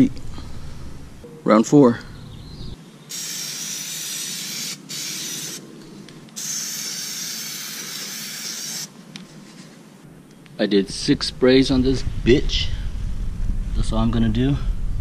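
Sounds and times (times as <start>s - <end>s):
aerosol can spraying hiss: 3.1s - 5.6s, 6.3s - 8.9s.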